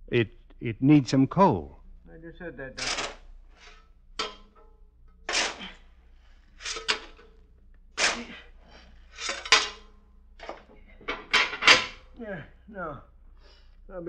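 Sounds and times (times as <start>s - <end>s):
shovel scraping and tossing coal: 2.8s - 4.5s, 5.2s - 5.9s, 6.5s - 7.4s, 8.0s - 10.6s.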